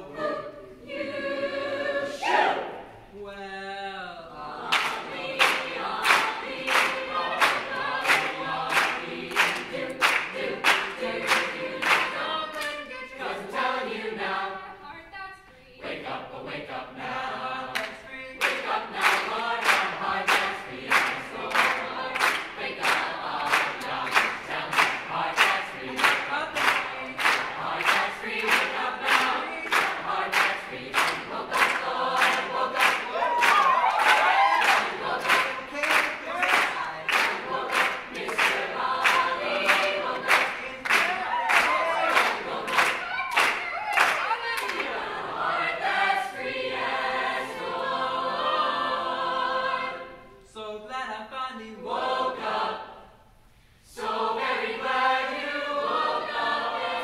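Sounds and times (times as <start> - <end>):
mixed choir singing: 0.0 - 50.7, 51.5 - 53.3, 53.9 - 57.0
hand claps on the beat: 4.7 - 12.8, 17.7 - 45.0.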